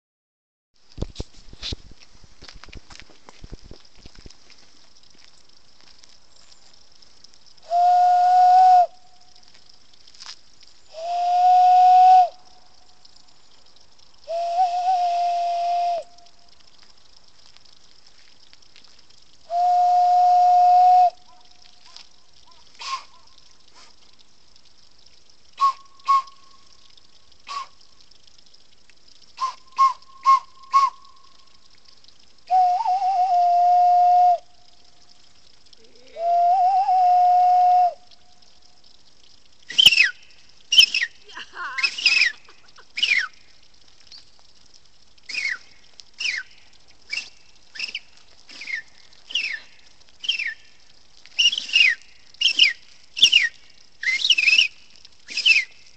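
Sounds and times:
cupped-hand whistling: 7.7 - 9.0, 10.9 - 12.4, 14.3 - 16.3, 19.5 - 21.2, 22.8 - 23.2, 25.6 - 26.6, 27.5 - 27.8, 29.4 - 31.2, 32.5 - 34.5, 36.2 - 38.0, 45.3 - 45.6, 46.2 - 46.5, 47.1 - 50.6, 51.4 - 55.8
high falling whistled chirps: 39.7 - 41.2, 41.8 - 42.4, 43.0 - 43.4, 45.3 - 50.8, 51.4 - 55.9.

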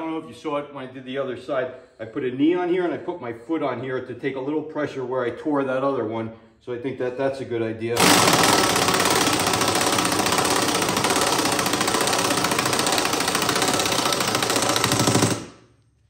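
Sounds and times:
impact wrench hammering: 8.0 - 15.7.

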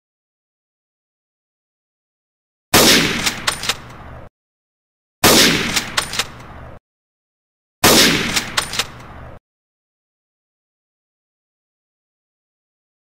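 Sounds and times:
sniper rifle shot: 2.7 - 3.9, 5.2 - 6.4, 7.8 - 9.0
sharp clicks: 3.1 - 4.0, 5.6 - 6.5, 8.2 - 9.2.

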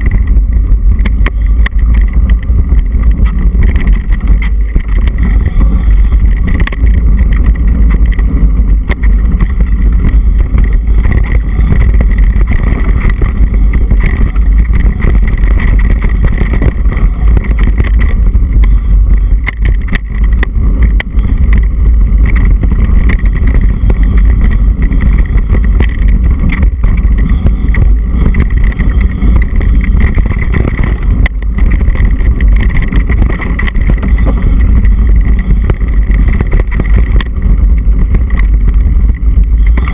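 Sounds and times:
mountain bike rattling on trail: 0.0 - 39.9
wind rumble on microphone: 0.0 - 39.9.

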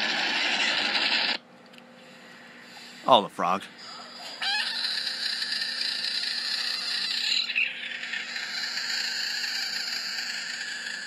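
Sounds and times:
frog screaming: 4.4 - 11.0.

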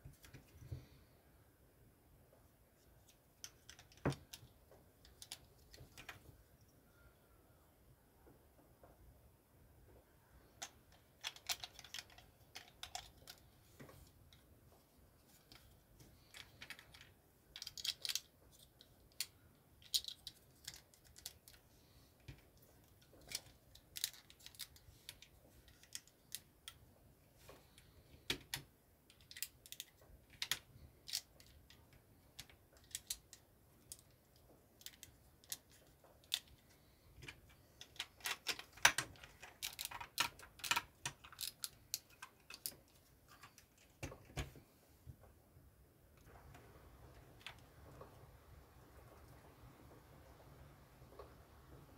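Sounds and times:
plastic bricks clicking: 10.6 - 13.5, 16.2 - 21.6, 34.8 - 44.5.

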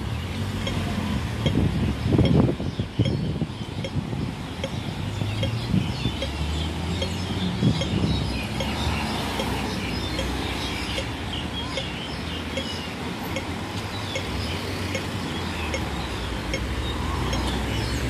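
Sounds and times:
road traffic engine rumble: 0.0 - 18.0
small birds chirping: 0.0 - 18.0
faint regular ticking: 14.9 - 17.5.

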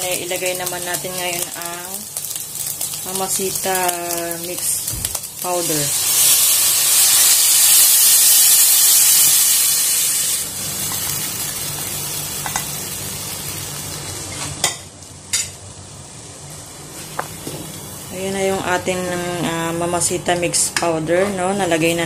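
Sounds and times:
meat sizzling in a frying pan: 0.0 - 14.2.

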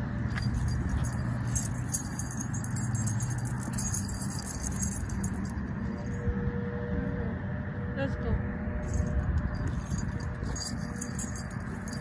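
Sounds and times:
steady low rumble: 0.0 - 12.0
light metallic jingling: 0.2 - 6.1, 8.9 - 12.0.

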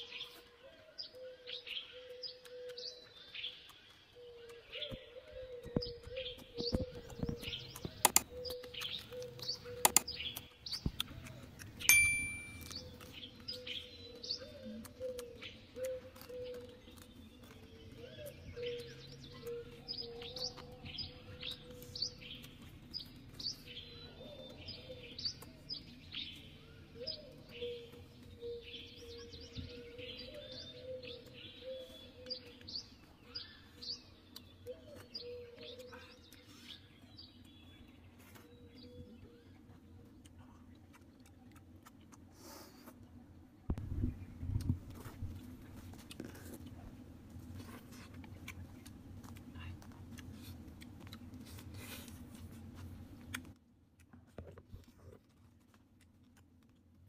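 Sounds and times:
birds chirping: 0.0 - 41.3
metallic clink: 11.9 - 12.8.

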